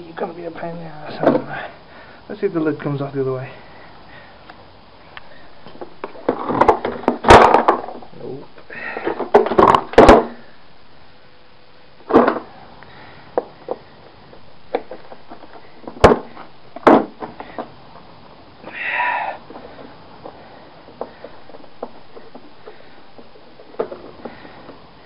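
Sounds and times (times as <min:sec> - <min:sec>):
hard plastic knocking and cracking: 0:05.7 - 0:08.0, 0:09.0 - 0:10.4, 0:12.1 - 0:12.5, 0:13.4 - 0:17.7, 0:19.7 - 0:24.8.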